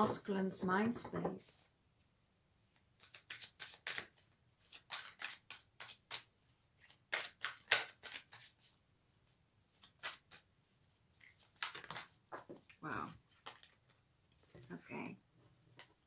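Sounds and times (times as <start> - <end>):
cards shuffled by hand: 2.7 - 8.8, 9.7 - 10.5, 11.2 - 14.6.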